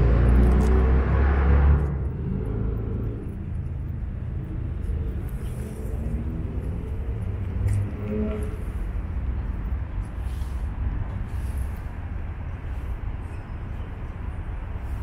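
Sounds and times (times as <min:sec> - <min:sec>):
steady low street rumble: 0:00.0 - 0:15.0.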